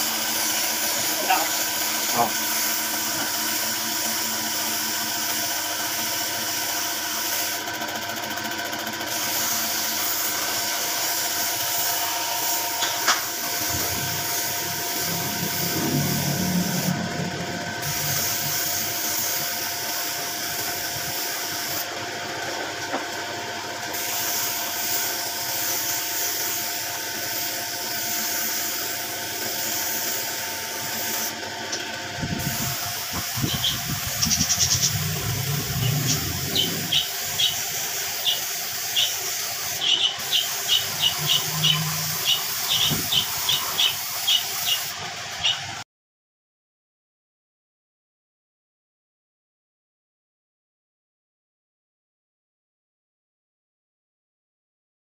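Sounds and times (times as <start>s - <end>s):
spray gun hissing: 0.0s - 7.6s, 9.1s - 21.9s, 23.9s - 31.4s, 32.3s - 45.0s
air compressor motor whine: 0.0s - 45.8s.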